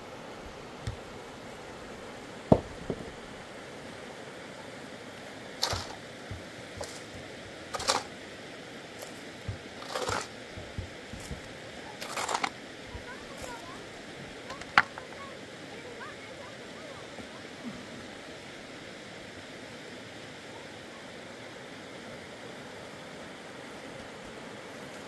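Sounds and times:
shovel scraping mortar: 5.6 - 8.1, 9.0 - 12.6.

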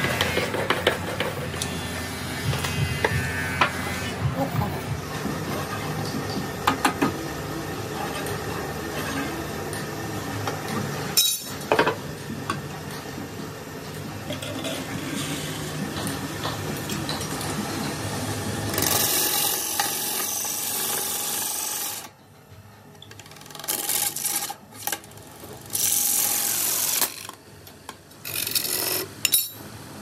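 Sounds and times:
low machine hum: 0.0 - 21.1.

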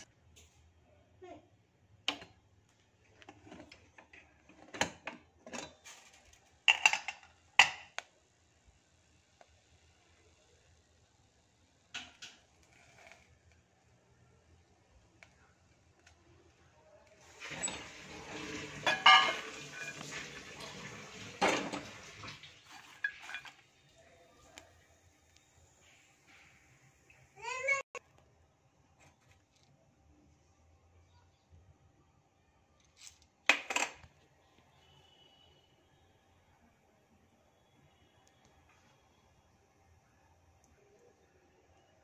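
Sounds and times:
metallic clanks of pot: 6.7 - 8.0, 17.5 - 20.3, 22.7 - 23.6
popcorn rattling in metal pot: 17.3 - 23.7.

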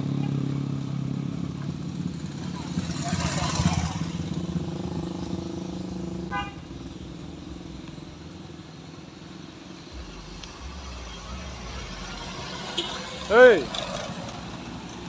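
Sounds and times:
low car engine rumble: 0.0 - 15.0
motorcycle engine passing: 0.0 - 15.0
horn toot: 6.3 - 6.8, 9.9 - 14.0.

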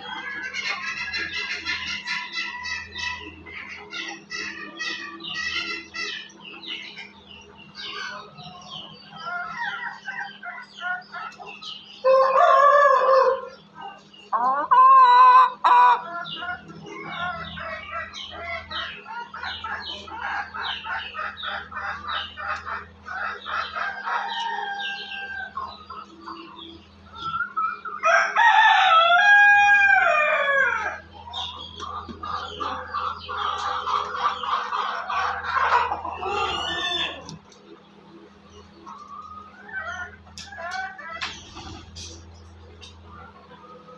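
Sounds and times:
chickens clucking: 0.0 - 43.9
rooster crowing: 28.0 - 31.0, 36.0 - 37.3.

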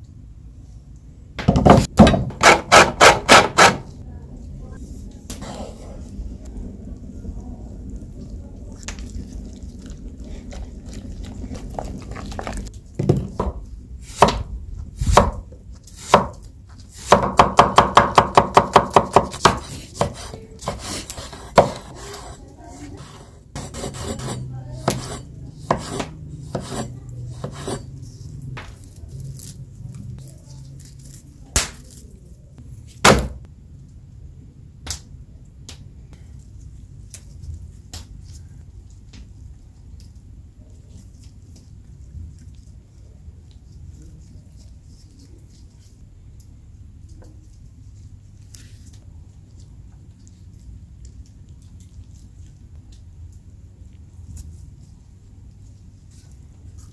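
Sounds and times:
knife chopping on wooden board: 1.4 - 3.8, 14.2 - 15.4, 16.0 - 16.4, 17.0 - 22.4, 23.1 - 27.8, 33.0 - 33.4.

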